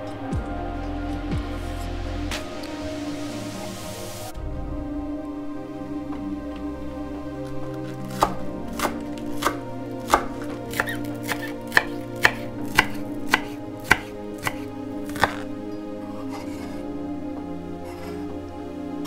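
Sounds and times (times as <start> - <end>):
knife chopping on wooden board: 8.2 - 15.4.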